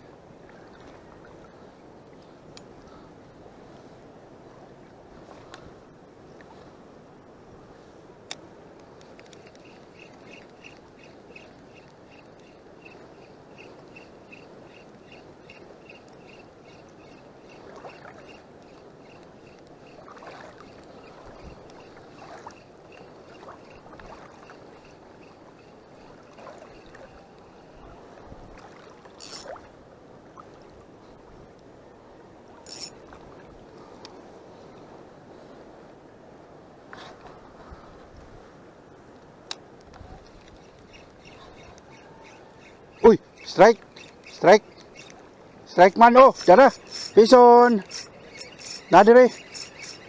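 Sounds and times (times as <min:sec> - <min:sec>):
fishing reel ticking: 0:09.2 - 0:17.6, 0:18.3 - 0:20.0, 0:24.5 - 0:26.9, 0:29.2 - 0:29.6, 0:32.6 - 0:33.0, 0:43.4 - 0:45.2, 0:46.0 - 0:50.0
shallow sea water washing: 0:09.2 - 0:31.2, 0:40.2 - 0:50.0.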